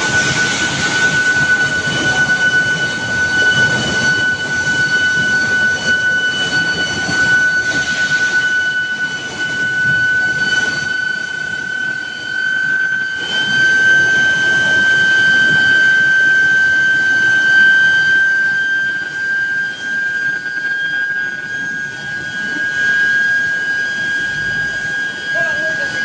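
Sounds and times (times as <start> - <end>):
high-pitched induction coil whine: 0.0 - 26.0
roller drives and machinery noise: 23.4 - 26.0.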